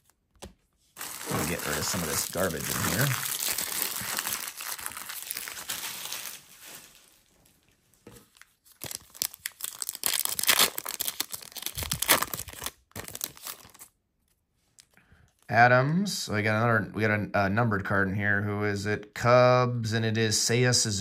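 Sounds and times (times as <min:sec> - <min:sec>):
card pack tearing open: 0:01.0 - 0:06.7, 0:08.7 - 0:13.9
foil wrappers crinkling: 0:01.0 - 0:13.9.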